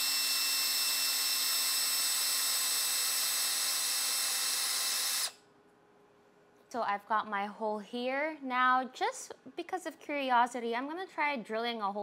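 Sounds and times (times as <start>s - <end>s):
cordless drill whining: 0.0s - 5.4s.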